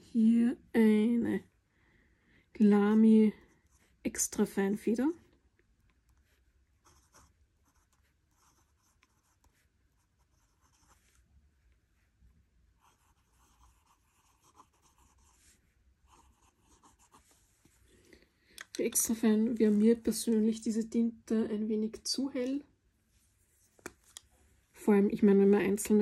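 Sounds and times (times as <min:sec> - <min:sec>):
fountain pen scratching paper: 0:06.8 - 0:11.2, 0:12.8 - 0:15.5, 0:16.1 - 0:17.3.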